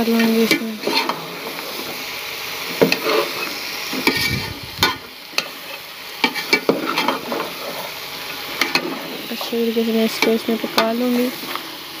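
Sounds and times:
food sizzling in hot oil: 0.0 - 12.0
metal spoon scraping pot: 2.9 - 5.0.

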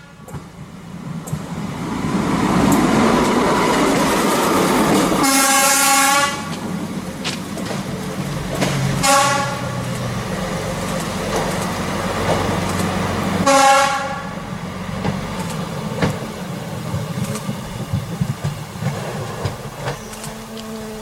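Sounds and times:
diesel engine drone: 0.0 - 21.0
wheels clicking over rail joints: 0.0 - 21.0
train horn: 5.2 - 6.6, 9.0 - 9.9, 13.4 - 14.5, 20.0 - 21.0.

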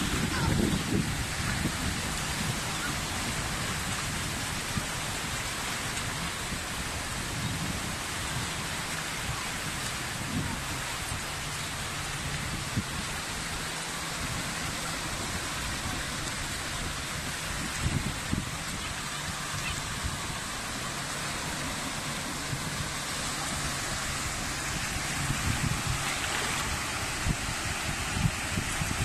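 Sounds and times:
small waves washing on shore: 0.0 - 29.0.

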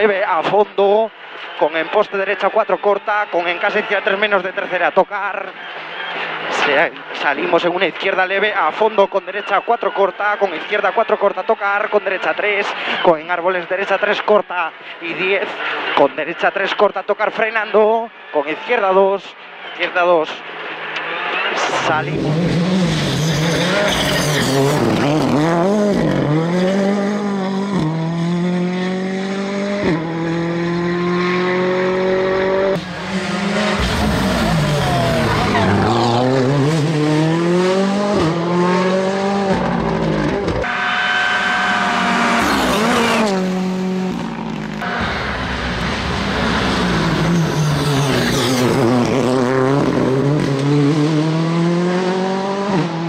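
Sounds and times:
rally car engine revving: 21.7 - 53.0.

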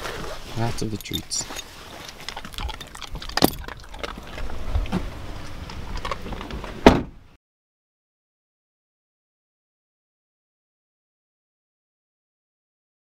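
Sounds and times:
dog eating treats: 0.8 - 6.2
loud thump: 6.8 - 7.2.

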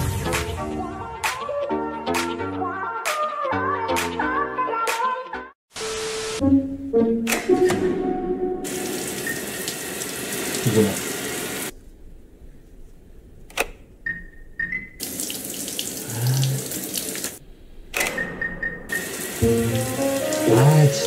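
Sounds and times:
shower water spraying: 8.7 - 11.7, 15.0 - 17.4, 18.9 - 21.0.

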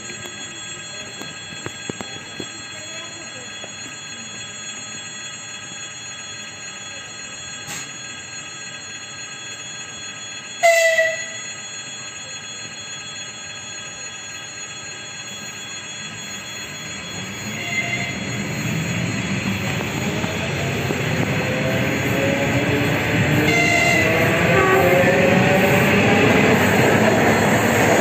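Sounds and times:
faint high whine: 0.0 - 28.0
train horn blast: 10.6 - 11.3, 23.4 - 25.1
low train rumble: 15.3 - 28.0.

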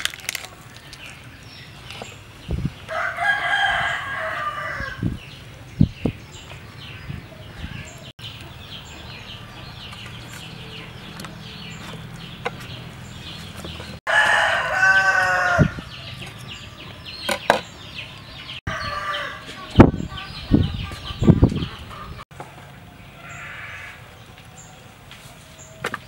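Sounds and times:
rooster crowing: 2.9 - 5.0, 14.1 - 15.9, 18.7 - 19.6
chickens clucking: 18.7 - 22.6.

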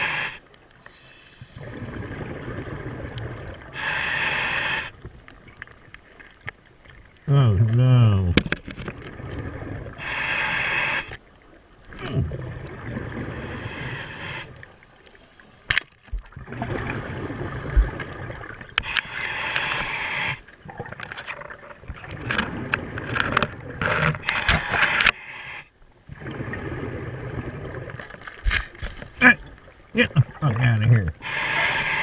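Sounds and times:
regulator hiss on inhale: 0.0 - 2.1, 3.7 - 5.0, 10.0 - 11.2, 13.3 - 14.7, 18.8 - 20.5, 24.3 - 25.7, 31.2 - 32.0
bubbling exhale gurgles: 1.4 - 4.9.

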